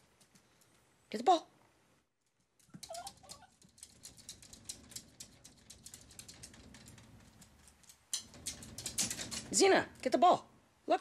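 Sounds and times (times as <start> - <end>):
dog claws clicking on floor: 2.2 - 10.1.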